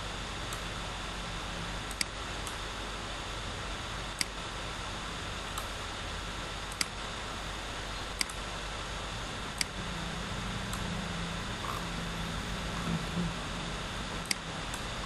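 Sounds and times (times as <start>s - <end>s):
low hum: 0.0s - 15.0s
steady hiss: 0.0s - 15.0s
computer mouse clicking: 1.9s - 2.6s, 4.2s - 4.4s, 6.7s - 7.0s, 8.2s - 8.4s, 9.6s - 9.8s.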